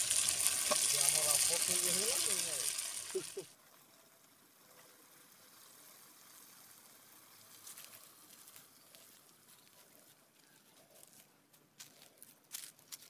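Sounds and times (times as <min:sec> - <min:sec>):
faint outdoor hiss: 0:00.0 - 0:13.0.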